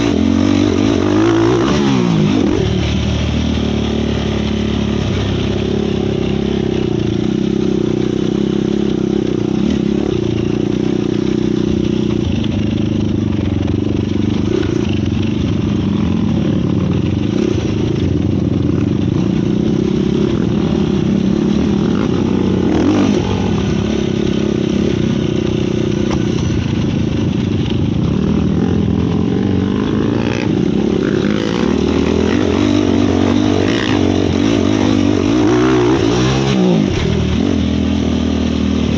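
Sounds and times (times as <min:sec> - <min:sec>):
quad engine revving: 0:00.0 - 0:38.9.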